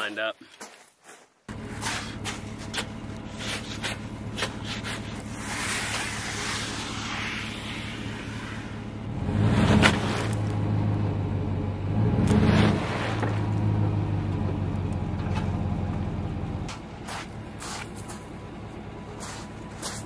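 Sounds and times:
truck engine revving: 1.5 - 20.0.

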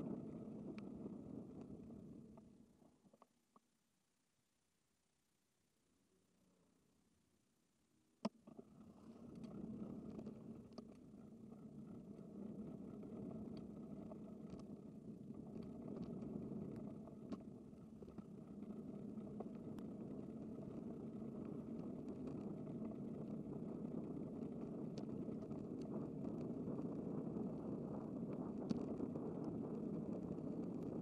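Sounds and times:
bicycle road and wind noise: 0.0 - 2.3, 9.1 - 31.0
small clicks: 8.2 - 31.0.

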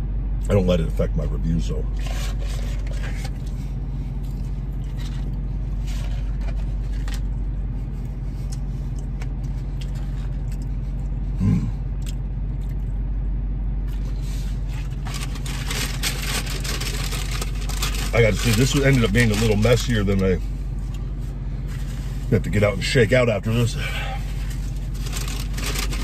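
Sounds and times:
car cabin engine hum: 0.0 - 26.0
man chewing: 2.7 - 5.4, 6.0 - 13.0, 13.8 - 15.9
person humming mm: 11.4 - 11.8
paper carton rustling: 14.5 - 19.9, 24.4 - 26.0.

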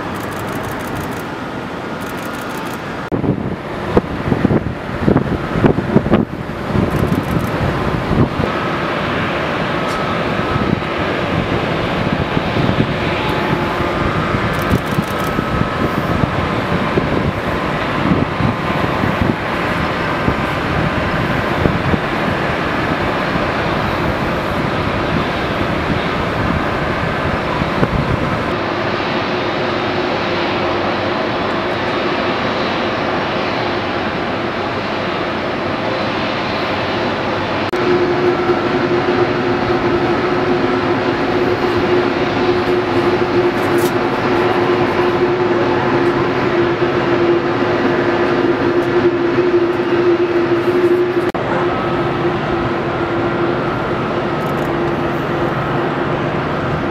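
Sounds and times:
jet engines at taxi power: 0.0 - 56.9
steady hum: 35.5 - 56.9.

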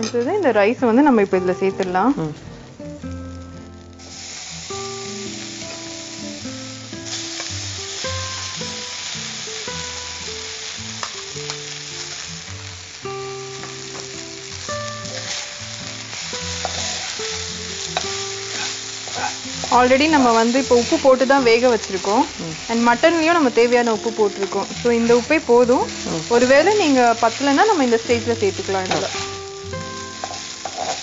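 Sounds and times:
rice sizzling in ghee: 0.0 - 31.0
soft background music: 0.0 - 31.0
spoon clicking and scraping: 30.2 - 31.0.

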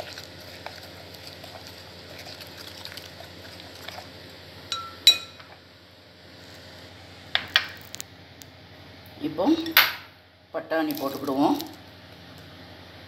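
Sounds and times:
spoon stirring wet cream: 0.0 - 5.7
spoon clinking on glass bowl: 4.7 - 5.5.

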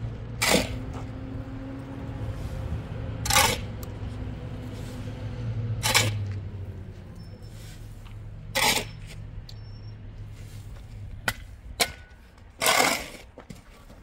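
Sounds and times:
shovel scraping sand: 0.3 - 1.1, 2.2 - 3.9, 4.6 - 6.4, 7.3 - 9.3, 10.3 - 13.9.

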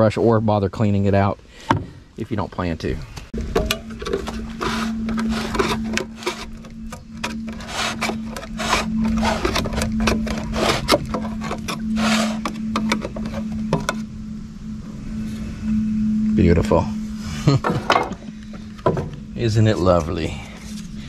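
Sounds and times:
paint can lid being pried: 3.4 - 14.0.

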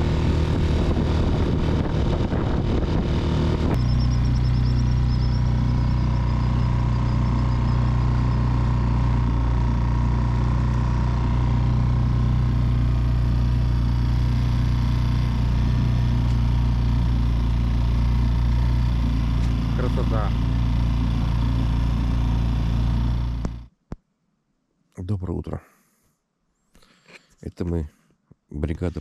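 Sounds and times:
outboard motor running: 0.0 - 23.7.

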